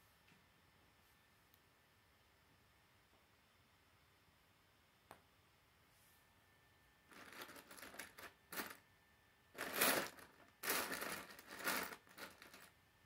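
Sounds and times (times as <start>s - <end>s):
plastic pieces clicking and rattling: 7.1s - 8.8s, 9.6s - 12.7s.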